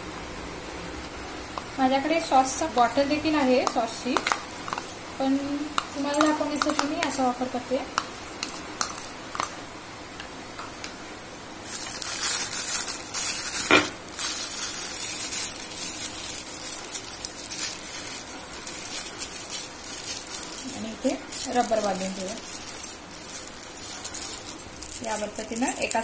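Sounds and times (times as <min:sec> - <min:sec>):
spoon scraping in a bowl: 0:05.7 - 0:07.3, 0:08.0 - 0:09.6
plastic bag crinkling: 0:11.6 - 0:26.0.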